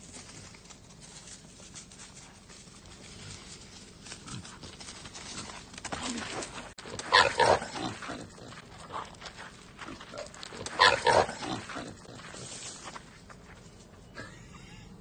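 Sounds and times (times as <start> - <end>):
hog squealing: 10.6 - 11.6.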